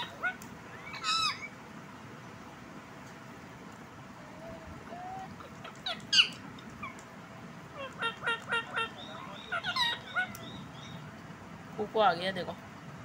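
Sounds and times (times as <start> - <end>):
parakeet squawk: 0.0 - 1.5, 7.8 - 10.9
parakeet chirps: 7.8 - 11.0.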